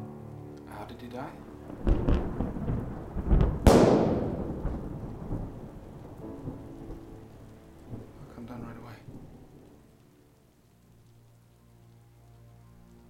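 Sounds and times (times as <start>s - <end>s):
steady rain: 0.0s - 13.0s
thunder crack rolling: 1.6s - 9.9s.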